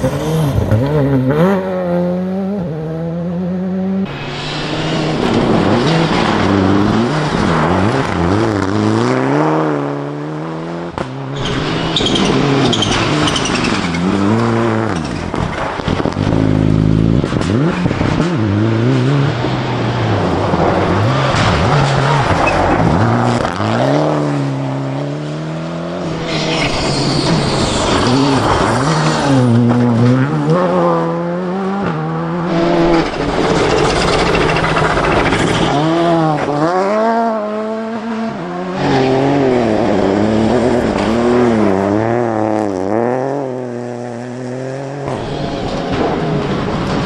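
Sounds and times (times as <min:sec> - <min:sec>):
rally car engines revving: 0:00.0 - 0:47.0
gravel and tyres hissing: 0:04.1 - 0:08.9, 0:26.1 - 0:29.9, 0:32.5 - 0:36.6.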